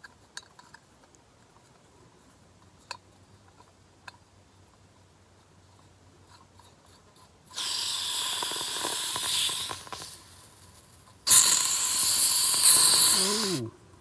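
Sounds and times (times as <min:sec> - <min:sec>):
gas hissing from canister valve: 0:07.5 - 0:10.2, 0:11.2 - 0:13.7.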